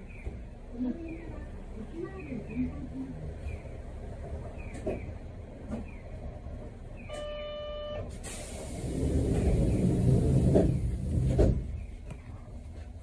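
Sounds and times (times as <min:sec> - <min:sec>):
compressed air hissing: 0:08.2 - 0:11.0.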